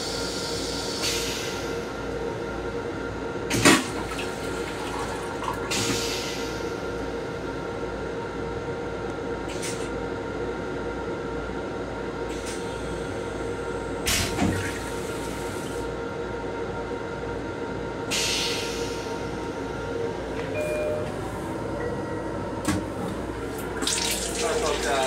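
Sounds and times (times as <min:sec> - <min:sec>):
railcar hum: 0:00.0 - 0:25.0
toilet flushing hiss: 0:03.6 - 0:06.8, 0:23.6 - 0:25.0.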